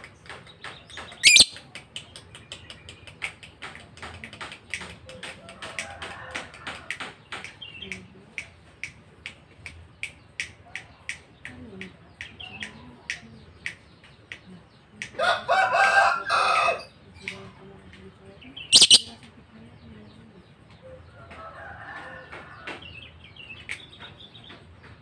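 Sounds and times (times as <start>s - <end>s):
lovebird chirping: 1.2s - 1.6s, 18.6s - 19.2s
rooster crowing: 15.2s - 16.9s.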